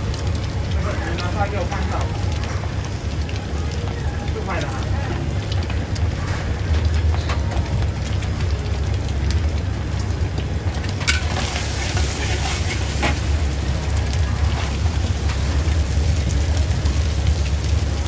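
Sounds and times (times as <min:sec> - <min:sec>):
gas burner rumble: 0:00.0 - 0:18.0
egg sizzling in oil: 0:08.5 - 0:18.0
metal ladle scraping a wok: 0:11.1 - 0:13.3.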